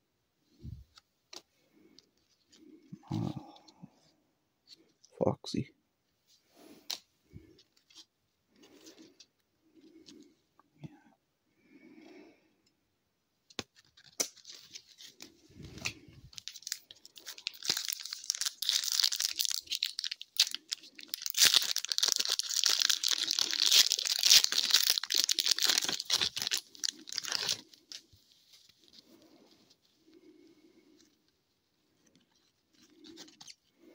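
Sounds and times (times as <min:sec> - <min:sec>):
wrapper crinkling: 0:15.8 - 0:29.0.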